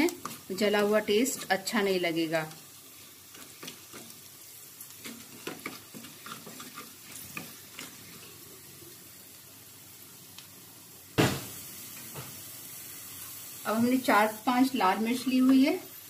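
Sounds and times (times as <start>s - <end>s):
garlic sizzling in ghee: 0.0s - 16.0s
wooden spatula scraping pan: 5.0s - 8.3s
loud knock: 11.2s - 11.5s.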